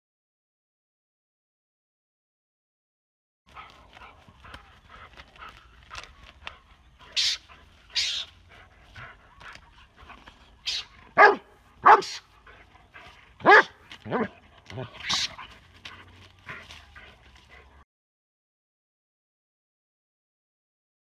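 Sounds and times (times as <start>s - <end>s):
dog barking: 10.7s - 12.3s, 13.4s - 15.3s.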